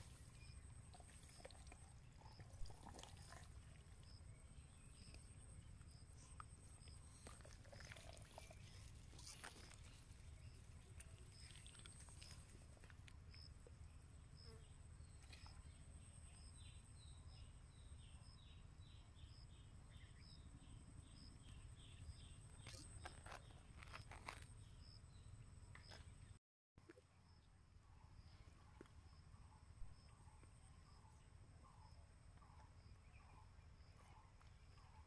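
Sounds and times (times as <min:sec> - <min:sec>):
insect chirp: 0:00.0 - 0:26.0
grass rustling: 0:07.1 - 0:13.0.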